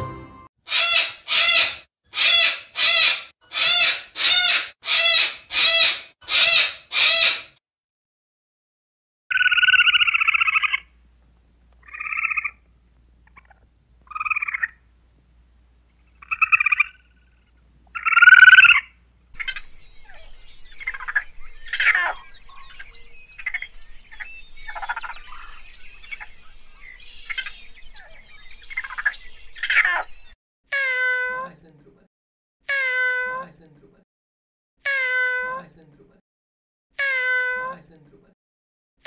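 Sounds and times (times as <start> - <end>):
raccoons chittering and squealing: 0.7 - 7.4, 11.8 - 12.6, 16.2 - 17.0, 18.0 - 30.1
squirrel buzzy calls: 0.7 - 7.6, 9.3 - 10.9, 11.8 - 12.6, 13.2 - 14.8, 16.1 - 17.1, 18.0 - 30.1.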